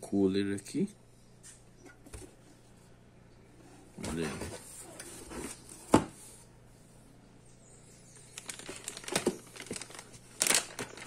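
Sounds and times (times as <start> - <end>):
plastic bag rustling and crinkling: 8.3 - 11.0.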